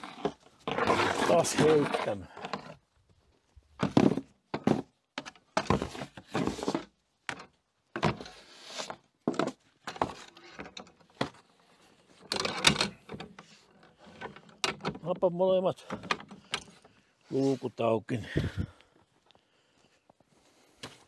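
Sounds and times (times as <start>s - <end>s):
shovel knocking and scraping snow: 0.0s - 2.7s, 3.8s - 7.4s.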